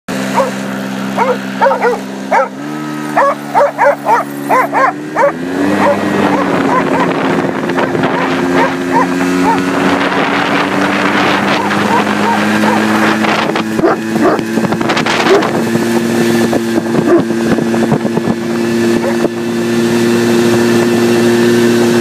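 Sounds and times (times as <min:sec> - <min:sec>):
snowmobile engine humming: 0:00.1 - 0:22.0
dogs barking: 0:00.2 - 0:10.2, 0:11.1 - 0:15.6, 0:17.0 - 0:17.3, 0:19.0 - 0:19.3.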